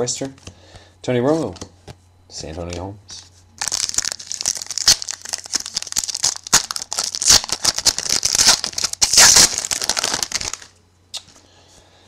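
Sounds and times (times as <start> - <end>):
foil wrapper crinkling: 3.6 - 10.8.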